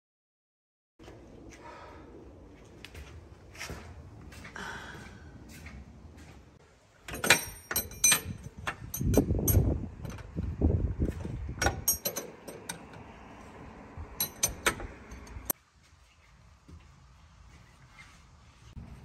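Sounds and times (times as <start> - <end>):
metal hand tools clinking: 7.1 - 9.7, 11.6 - 13.0, 14.2 - 15.5.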